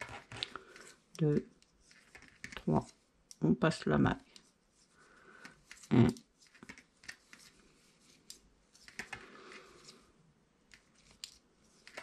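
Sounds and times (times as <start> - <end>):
knitting needles clicking: 5.4 - 7.5.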